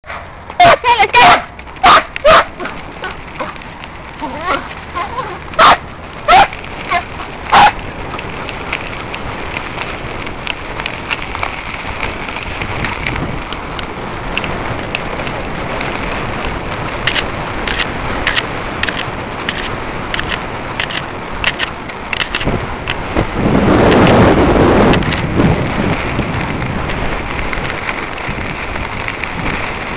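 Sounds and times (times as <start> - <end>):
bike rolling crackling noise: 0.0 - 29.9
dog barking: 0.1 - 3.5, 4.3 - 7.8.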